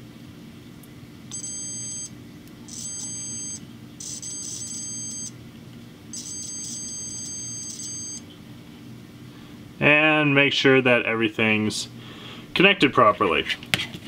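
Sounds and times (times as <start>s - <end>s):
multimeter high-pitched beeps: 1.3s - 2.1s, 2.7s - 5.3s, 6.1s - 8.3s.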